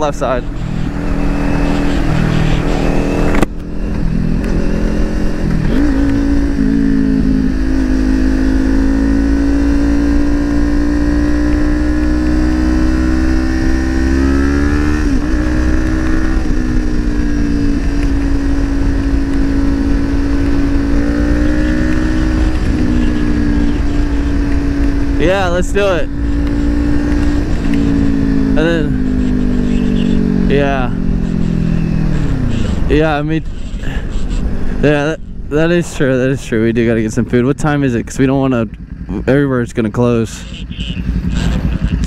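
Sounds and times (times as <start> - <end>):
motorcycle engine cruising: 0.0 - 42.0.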